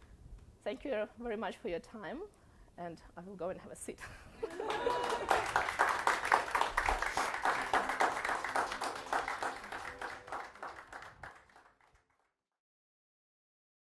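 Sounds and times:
audience applauding: 4.4 - 12.3.

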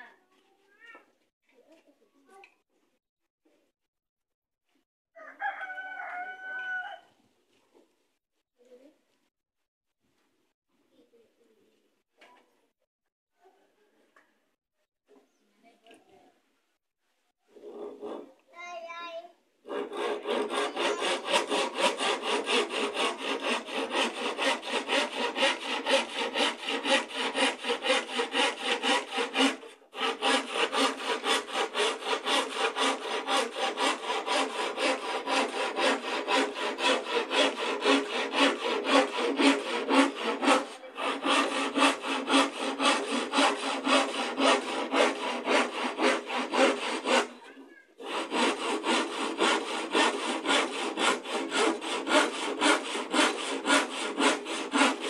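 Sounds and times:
handsaw cutting wood: 17.5 - 18.4, 19.6 - 55.0.

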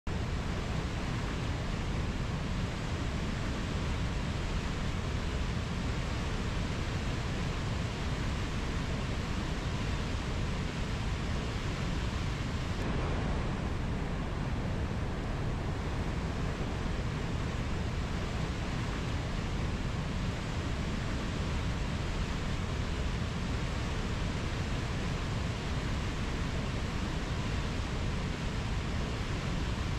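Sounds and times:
river rushing over rapids: 0.1 - 29.9.

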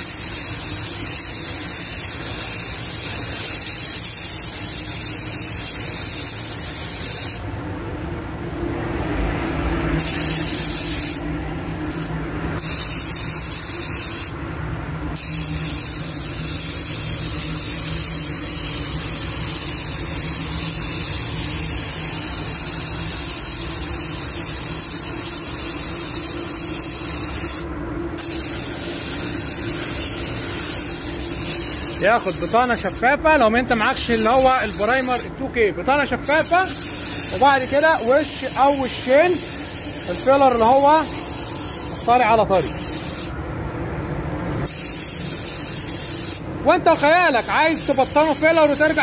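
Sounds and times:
paint spray gun hissing: 0.0 - 7.5, 10.0 - 11.3, 11.9 - 14.4, 15.2 - 33.0, 33.7 - 35.4, 36.2 - 43.4, 44.6 - 49.0.

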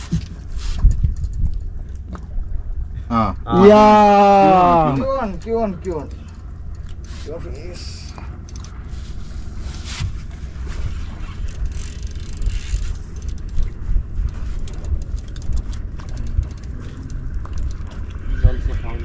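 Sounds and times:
wind buffeting microphone: 9.3 - 19.0.

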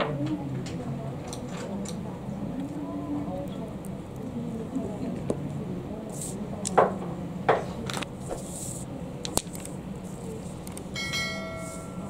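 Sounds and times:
short ringing chime: 11.0 - 12.0.

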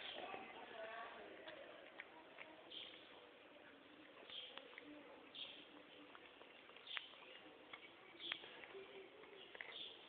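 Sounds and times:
cat chewing food: 1.2 - 10.0.

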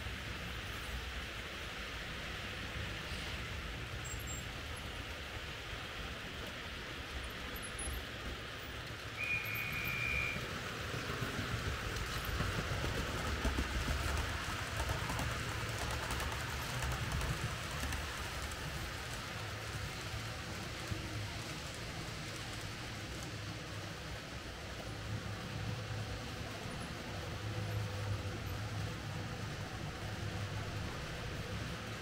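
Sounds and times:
model train wheels rumbling on track: 0.0 - 32.0
whistle-like tone: 9.2 - 10.4.

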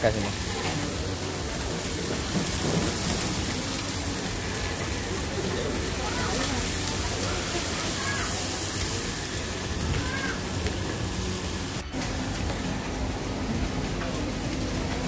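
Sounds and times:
faint chatter of diners: 0.0 - 11.3
fish sizzling in oil: 0.0 - 15.0.

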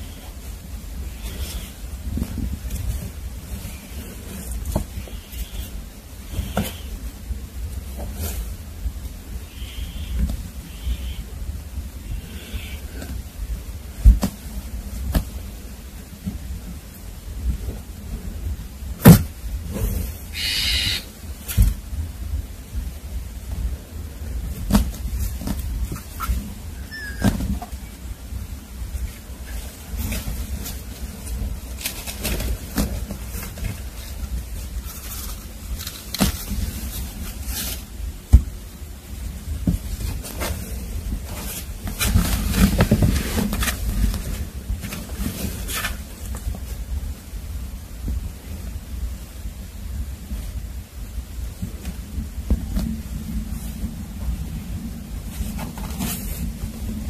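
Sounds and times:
rustling against blankets and cardboard: 0.0 - 57.0
kitten crying: 26.8 - 27.4.

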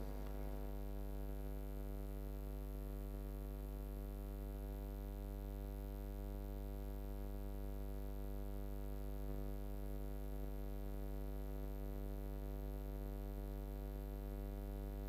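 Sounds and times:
electrical mains hum: 0.0 - 1.4.

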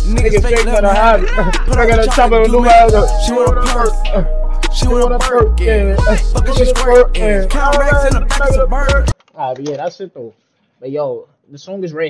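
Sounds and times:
deep sliding bass: 0.0 - 9.1
rapping over a beat: 0.0 - 9.2.

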